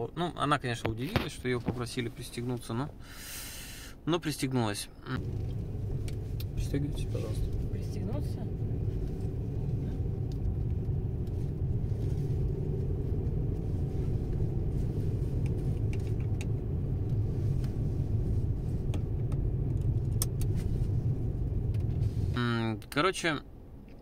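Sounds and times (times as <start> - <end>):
car cabin rumble: 5.2 - 22.9.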